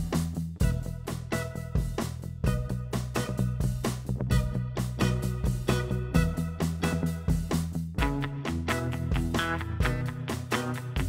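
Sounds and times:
drums beat: 0:00.0 - 0:11.0
guitar: 0:00.0 - 0:11.0.

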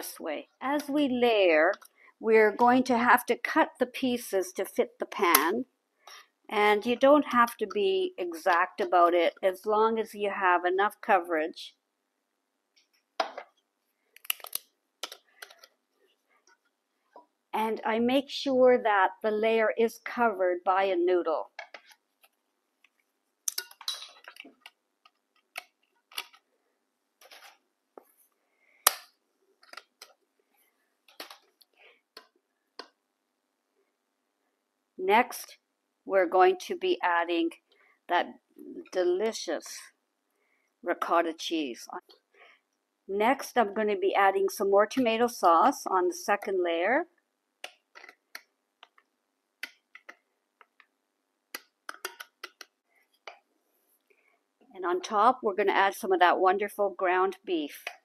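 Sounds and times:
dry pasta sheets snapping: 0:14.2 - 0:15.2.

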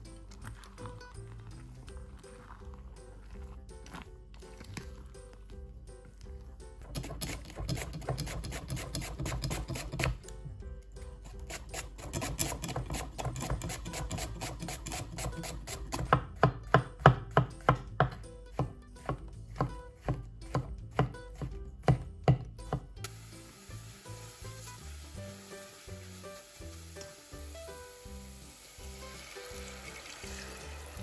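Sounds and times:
knife chopping on cutting board: 0:06.9 - 0:10.2, 0:11.3 - 0:22.9.

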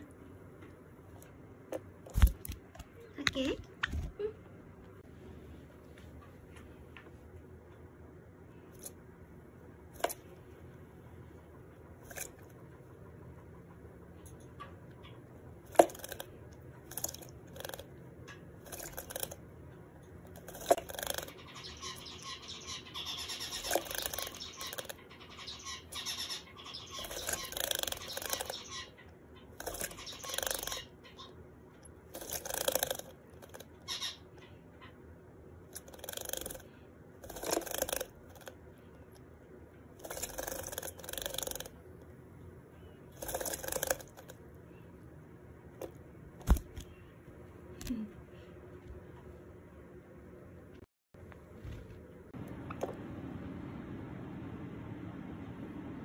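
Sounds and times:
bird splashing water: 0:18.6 - 0:19.4
finch song and calls: 0:20.8 - 0:31.4, 0:33.7 - 0:35.0.

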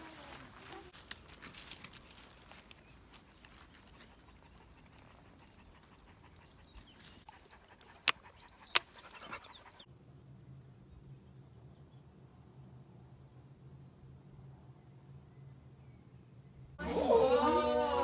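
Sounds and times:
dog panting: 0:03.1 - 0:09.8.

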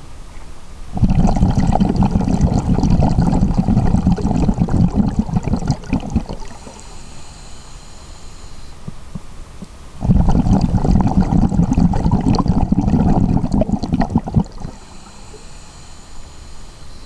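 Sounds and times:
underwater air bubbles rumbling: 0:01.0 - 0:06.7, 0:10.0 - 0:14.8.

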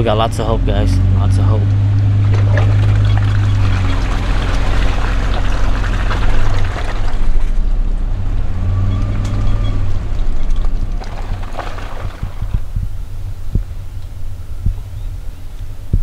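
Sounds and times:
engine drone: 0:00.0 - 0:16.0
tyres crackling on trail: 0:01.4 - 0:16.0.

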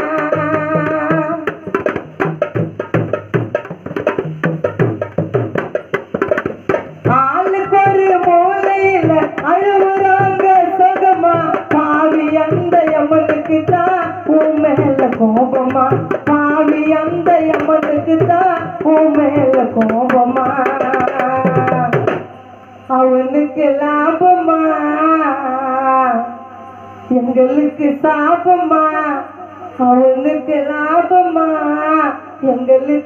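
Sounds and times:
hand drums fast rhythm: 0:00.0 - 0:22.3.

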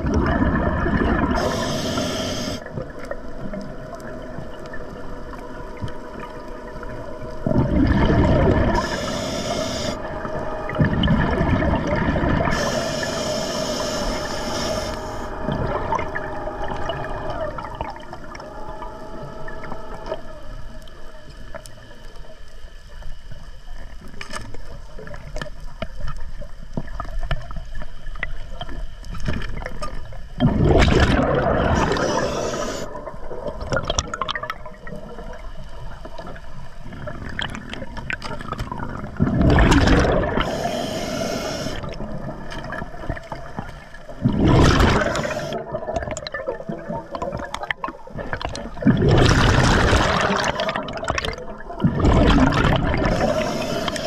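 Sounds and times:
exhaled bubbles rushing: 0:00.0 - 0:01.7, 0:02.6 - 0:20.9, 0:30.4 - 0:35.5, 0:36.2 - 0:54.0
steady hum: 0:00.0 - 0:22.1, 0:30.4 - 0:33.3, 0:39.2 - 0:42.4, 0:44.2 - 0:45.8, 0:52.2 - 0:54.0
faint bubbling and clicks: 0:00.0 - 0:54.0
regulator inhalation hiss: 0:01.4 - 0:02.7, 0:08.7 - 0:10.1, 0:12.4 - 0:15.4, 0:31.8 - 0:32.9, 0:40.3 - 0:42.0, 0:44.9 - 0:45.7, 0:53.0 - 0:54.0.

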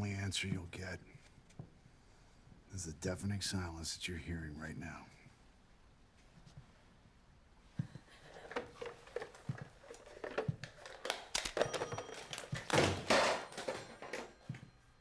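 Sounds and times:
rustling of objects: 0:07.7 - 0:15.0
clicks and knocks of objects: 0:08.4 - 0:14.7.

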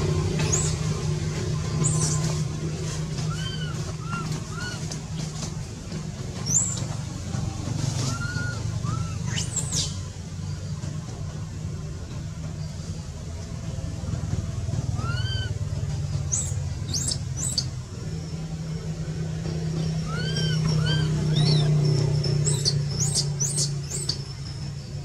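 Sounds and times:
steady low hum: 0:00.0 - 0:25.0
high-pitched animal calls: 0:03.2 - 0:05.0, 0:08.0 - 0:10.0, 0:15.0 - 0:15.6, 0:19.9 - 0:21.8.

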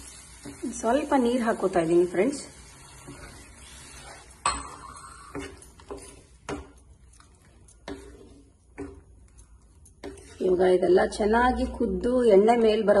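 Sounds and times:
spatula stirring thick sauce: 0:00.0 - 0:11.9.

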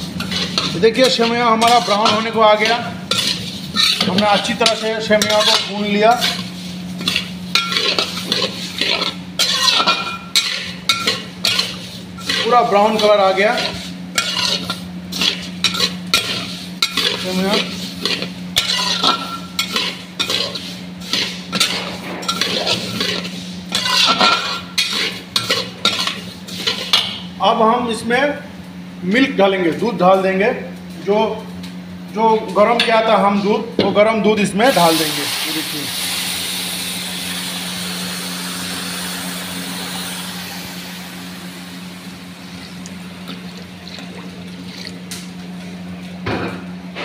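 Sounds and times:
spatula scraping metal pan: 0:00.0 - 0:27.1
light sizzle: 0:00.0 - 0:27.2, 0:34.6 - 0:45.6
steady low hum: 0:00.0 - 0:47.0.

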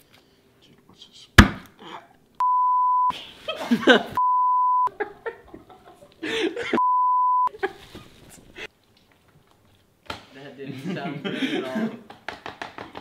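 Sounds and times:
censor bleeps: 0:02.4 - 0:03.1, 0:04.2 - 0:04.9, 0:06.8 - 0:07.5
person laughing: 0:04.9 - 0:06.8.

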